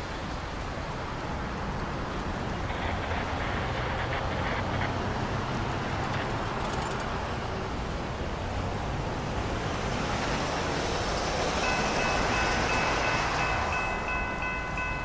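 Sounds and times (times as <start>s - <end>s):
distant train rumble: 9.7s - 15.0s.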